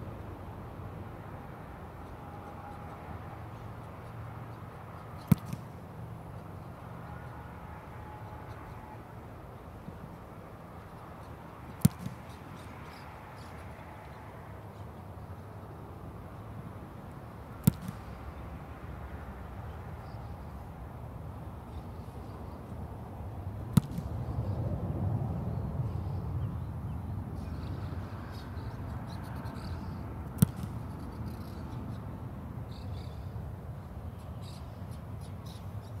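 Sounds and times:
foot kicking a football: 5.2 - 5.7, 11.8 - 12.3, 17.6 - 18.1, 23.7 - 24.1, 30.4 - 30.8.

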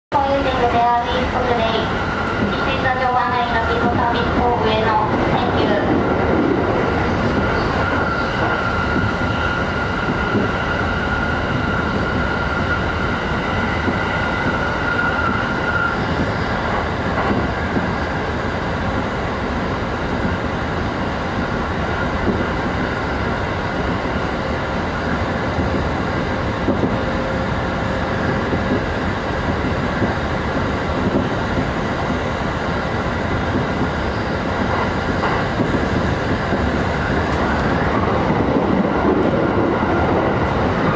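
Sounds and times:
train wheels rumbling on rail: 0.1 - 40.9.

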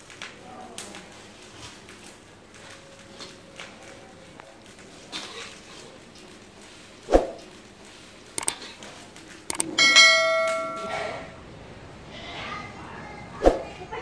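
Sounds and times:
mouse clicks: 8.4 - 8.6, 9.5 - 9.7
notification bell chime: 9.8 - 11.1.

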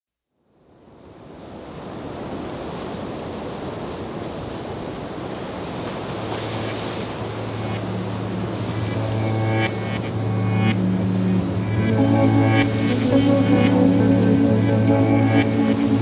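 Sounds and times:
rushing surf-like noise: 1.2 - 16.0
low steady drone: 6.6 - 16.0.

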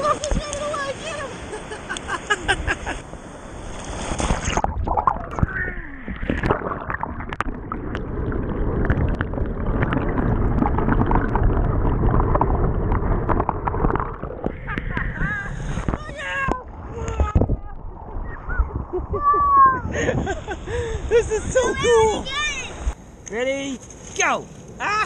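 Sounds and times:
ocean surf: 0.0 - 4.6, 13.0 - 23.0
underwater clicks and crackles: 0.1 - 0.8, 4.4 - 17.6
muffled underwater churning: 3.4 - 19.6.

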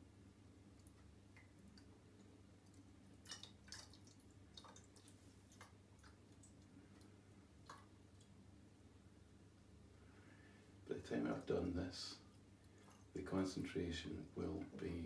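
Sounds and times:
water dripping into glass flask: 0.7 - 8.4.

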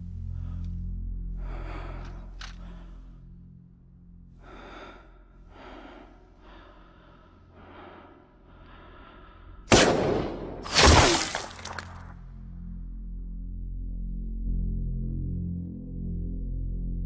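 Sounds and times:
man breathing heavily: 0.0 - 9.8.

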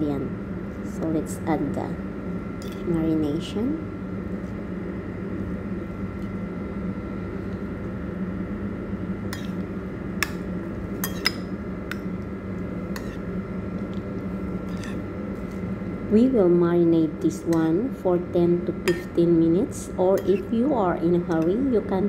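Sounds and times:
steady background hum: 0.0 - 22.0
utensil clinking against bowl: 11.0 - 12.0, 18.8 - 19.2, 20.1 - 20.5.

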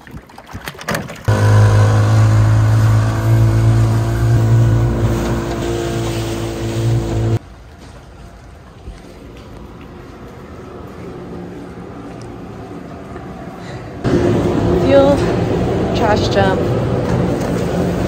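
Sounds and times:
outboard motor running: 1.2 - 7.4.

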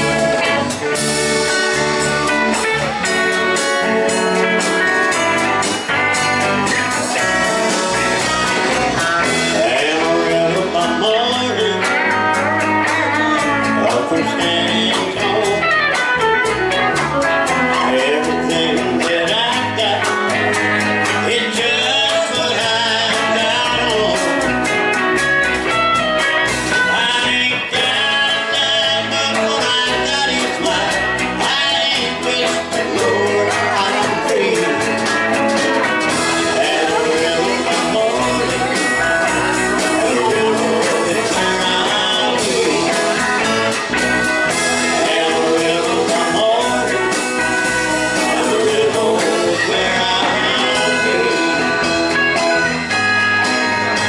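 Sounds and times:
live country-rock band: 0.0 - 54.0.

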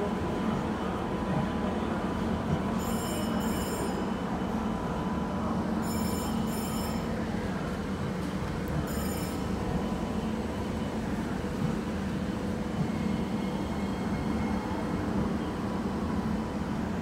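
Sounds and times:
short high-pitched squeals: 5.8 - 7.1.

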